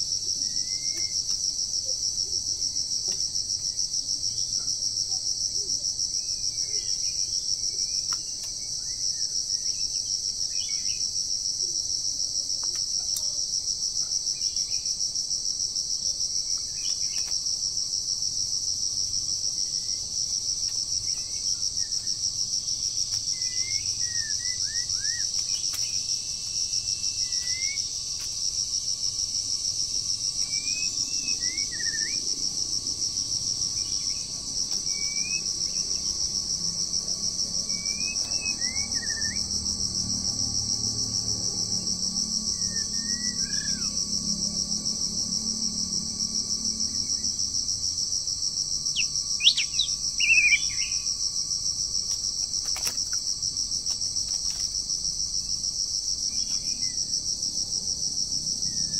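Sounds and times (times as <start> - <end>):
high-pitched insect chorus: 0.0 - 58.9
bird chirps and whistles: 49.0 - 51.0.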